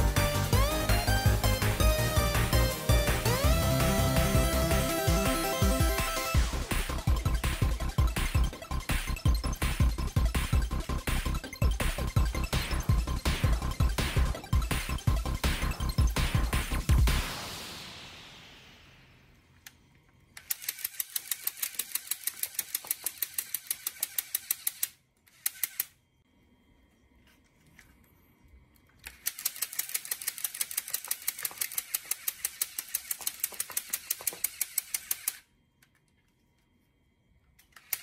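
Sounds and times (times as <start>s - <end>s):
toy gun rattling clacks: 20.4s - 26.0s, 28.9s - 36.1s, 37.6s - 38.0s.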